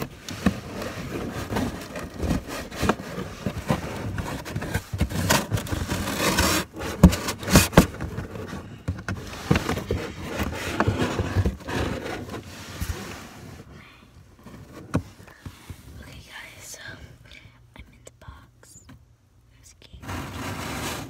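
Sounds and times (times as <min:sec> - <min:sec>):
scraping and knocking inside box: 0:00.0 - 0:13.7, 0:14.4 - 0:15.9, 0:20.0 - 0:21.0.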